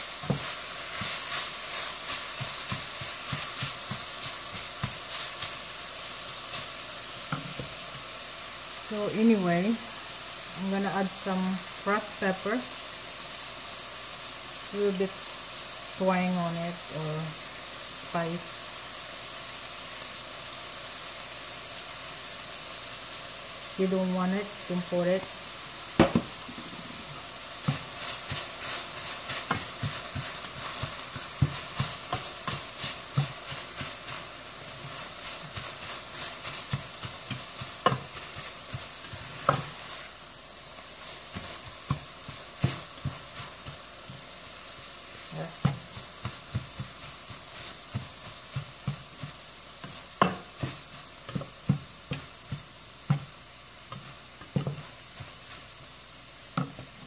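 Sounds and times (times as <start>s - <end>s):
food sizzling in a pan: 0.0s - 57.0s
spatula tapping a pan: 0.2s - 5.6s, 7.3s - 7.8s, 26.0s - 26.8s, 27.6s - 40.0s, 41.0s - 44.3s, 45.4s - 55.7s, 56.5s - 57.0s.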